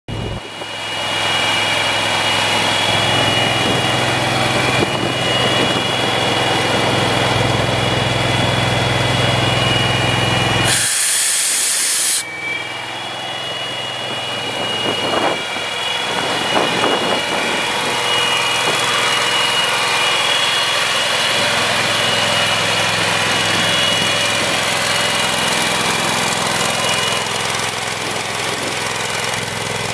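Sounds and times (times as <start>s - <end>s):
air compressor engine running: 0.1s - 29.9s
loud air hiss: 10.6s - 12.4s.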